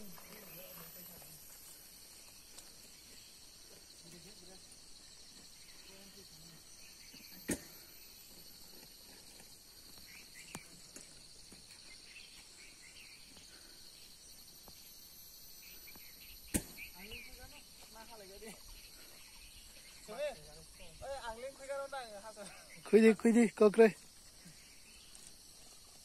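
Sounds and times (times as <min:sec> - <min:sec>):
faint chirps: 0:00.0 - 0:26.0
insects buzzing and trilling: 0:00.0 - 0:26.0.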